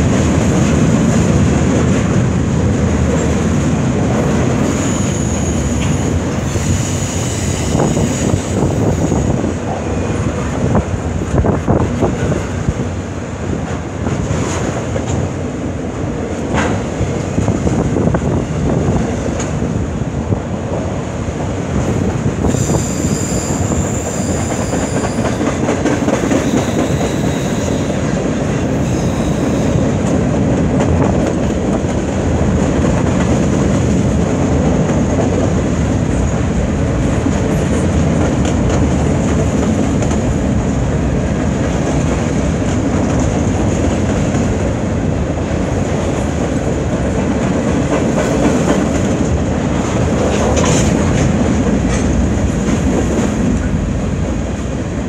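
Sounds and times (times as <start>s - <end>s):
steel wheels rumbling on rail: 0.0s - 55.0s
high wheel squeal: 4.7s - 9.2s, 22.4s - 25.4s, 26.4s - 28.0s, 28.8s - 29.8s
brief high screech: 22.6s - 25.1s.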